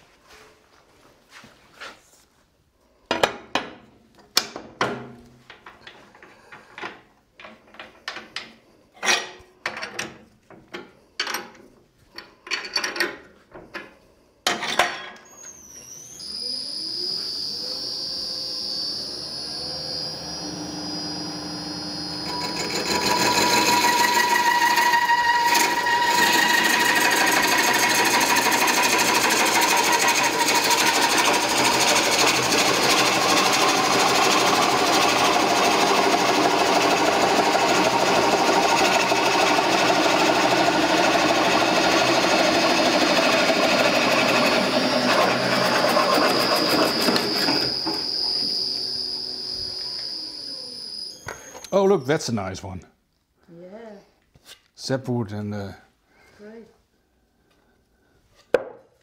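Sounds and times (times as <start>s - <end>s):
motor whine: 15.6s - 24.7s, 41.8s - 51.7s.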